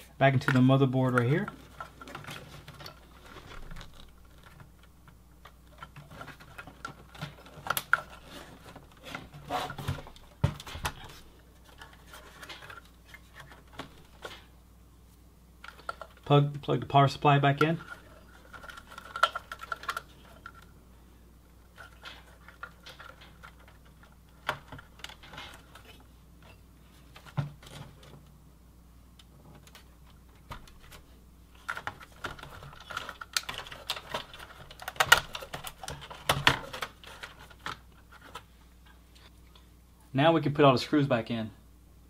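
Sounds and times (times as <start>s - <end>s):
computer parts clicking and rattling: 17.4s - 20.7s, 21.7s - 26.0s, 31.5s - 38.4s.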